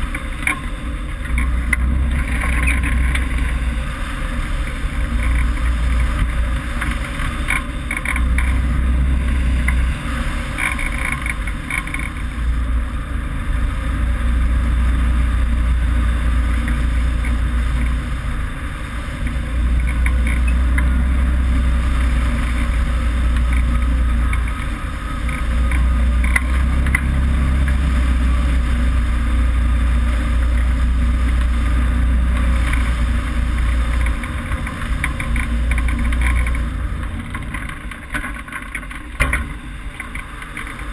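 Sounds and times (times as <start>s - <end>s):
faint ticks: 5.1s - 8.7s, 10.6s - 12.3s, 19.2s - 21.1s, 30.4s - 40.9s.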